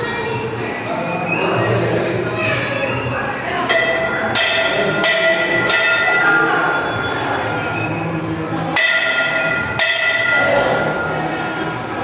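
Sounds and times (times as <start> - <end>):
temple bell clanging: 3.7 - 7.5, 8.8 - 11.3.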